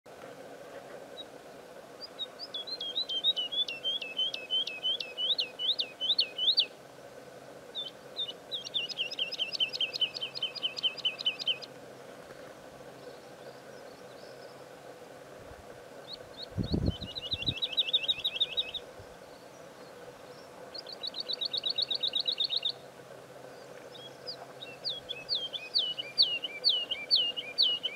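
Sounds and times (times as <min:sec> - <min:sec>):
woodlark singing liquid whistled notes: 0:02.0 - 0:06.8, 0:07.8 - 0:11.7, 0:16.1 - 0:18.8, 0:20.7 - 0:22.8, 0:23.9 - 0:27.9.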